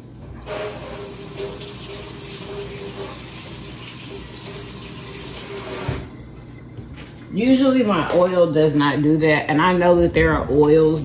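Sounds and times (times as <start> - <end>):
kitchen tap running: 0.4 - 6.2.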